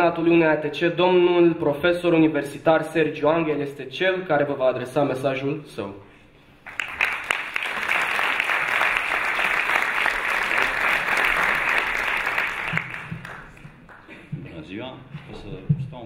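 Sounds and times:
audience applauding: 6.6 - 14.2.

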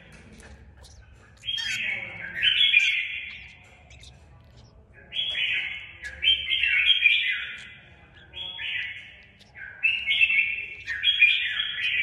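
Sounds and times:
bird rasping squawks: 0.7 - 4.7.

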